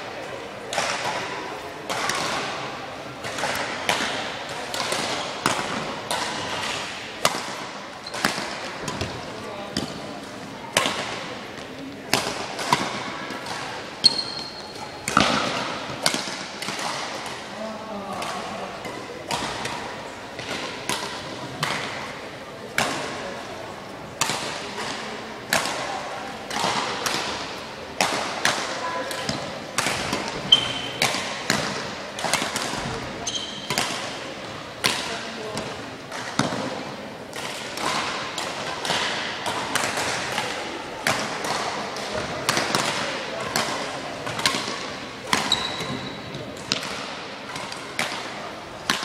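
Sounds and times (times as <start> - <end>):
rackets hitting shuttlecock: 0.5 - 23.5, 24.1 - 49.0
badminton racket hitting shuttlecock: 37.3 - 49.0.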